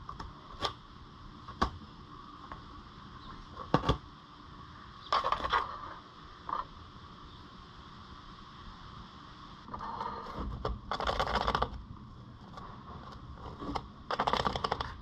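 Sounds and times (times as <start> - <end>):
rabbit scratching cardboard: 9.7 - 11.8, 12.4 - 15.0.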